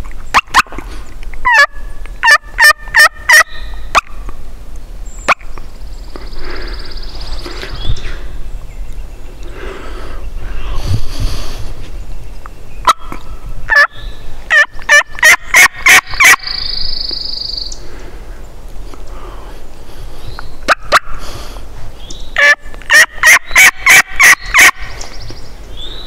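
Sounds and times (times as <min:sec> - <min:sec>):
rapid turkey yelps: 0:01.4 - 0:04.1, 0:12.8 - 0:13.9, 0:14.5 - 0:16.6, 0:22.4 - 0:24.9
faint turkey gobbling: 0:01.4 - 0:04.2, 0:12.8 - 0:13.9, 0:14.5 - 0:16.5, 0:22.4 - 0:24.8
high songbird trill: 0:11.9 - 0:17.9, 0:22.0 - 0:22.5, 0:23.3 - 0:26.0.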